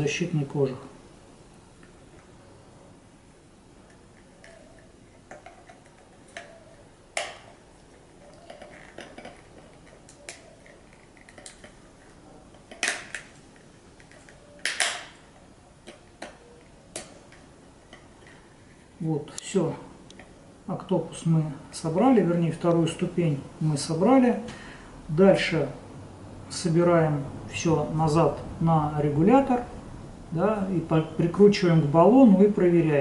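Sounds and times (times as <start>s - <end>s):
plastic parts clicking and knocking: 3.9s - 7.6s, 8.2s - 11.8s, 12.5s - 15.2s.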